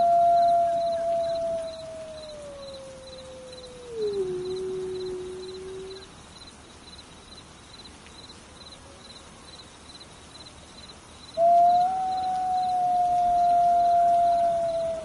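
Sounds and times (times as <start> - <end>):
wolf howling: 0.0 - 6.0, 11.4 - 15.0
faint cricket chirping: 0.0 - 15.0.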